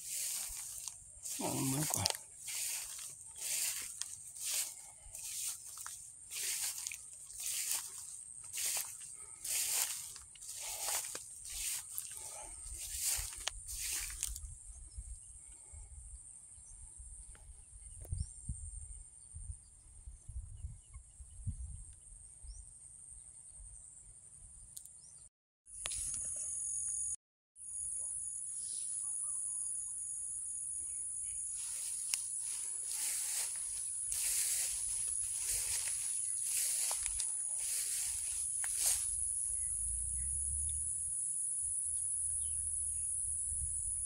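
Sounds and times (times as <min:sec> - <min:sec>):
footsteps rustling through grass: 0:00.0 - 0:14.5, 0:31.4 - 0:39.4
crickets buzzing: 0:00.0 - 0:15.4, 0:25.9 - 0:44.0
wind rumble on microphone: 0:16.7 - 0:22.6.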